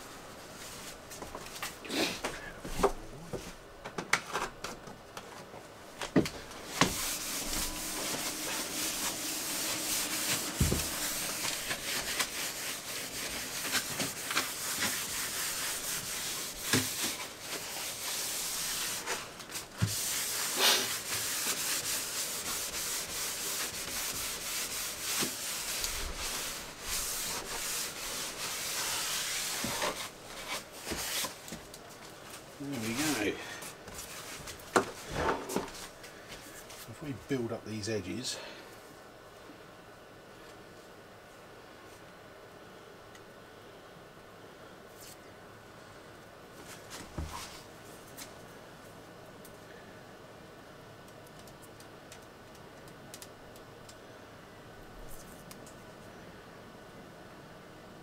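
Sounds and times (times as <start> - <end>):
cloth rag scrubbing worktop: 6.0 - 31.6, 32.6 - 35.9.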